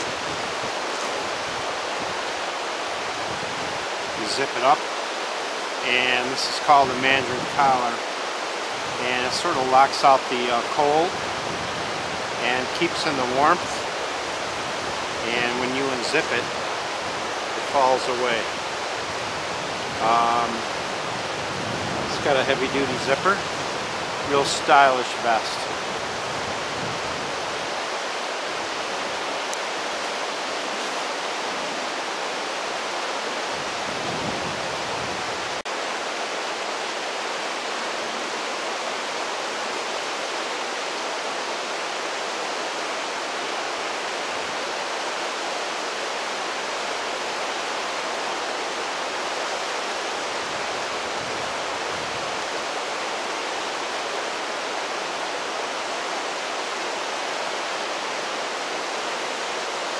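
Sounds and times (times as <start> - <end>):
river rapids rushing: 0.0 - 59.9.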